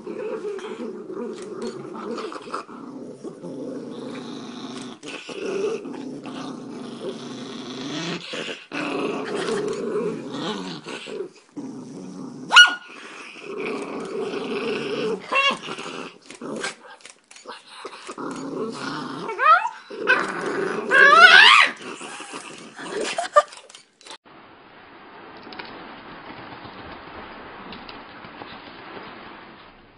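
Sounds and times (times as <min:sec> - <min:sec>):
dog growling: 0:00.0 - 0:23.8.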